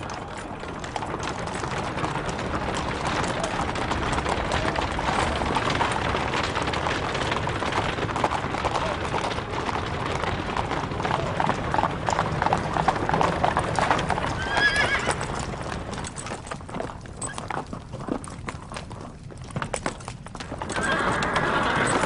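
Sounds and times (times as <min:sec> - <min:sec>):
horse hooves clopping on pavement: 0:00.0 - 0:22.0
horse neighing: 0:14.3 - 0:15.3, 0:20.7 - 0:22.0.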